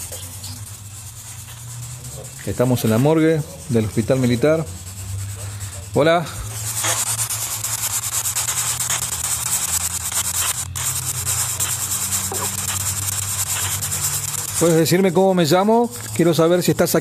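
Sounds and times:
chopped radio static: 5.4s - 17.0s.

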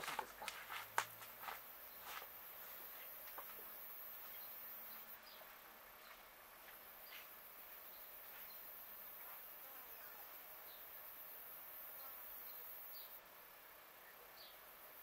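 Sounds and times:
faint buzzing of flying insects: 0.0s - 15.0s.

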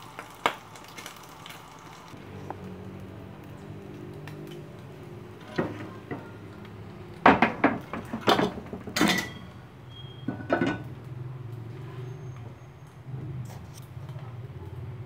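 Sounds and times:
metal pot clattering on stove: 7.2s - 9.6s, 10.2s - 11.0s.

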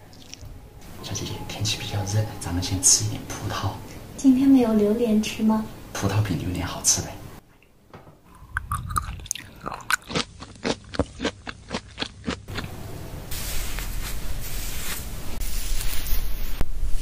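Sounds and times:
person chewing a grape: 0.1s - 0.4s, 8.3s - 12.8s.

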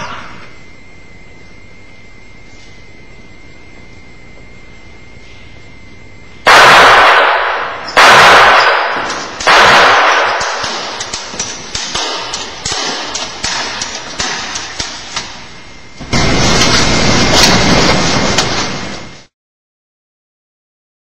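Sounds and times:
loud gunshots echoing: 6.4s - 19.0s
sharp cracks: 6.5s - 19.2s.

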